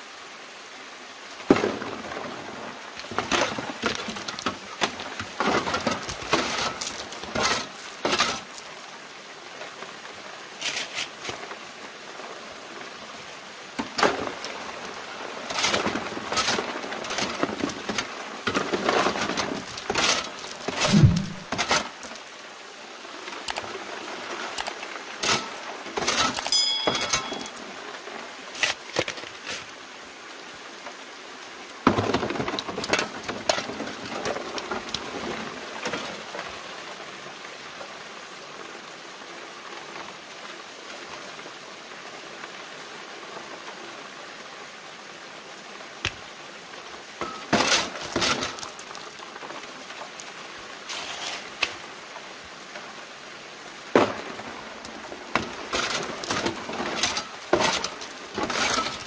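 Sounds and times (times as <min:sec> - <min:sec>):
running water: 0:00.9 - 0:37.2
gravel rattling on metal screen: 0:03.0 - 0:08.6, 0:15.4 - 0:22.2, 0:24.5 - 0:27.6, 0:47.2 - 0:49.4, 0:50.9 - 0:51.7, 0:54.0 - 0:59.0.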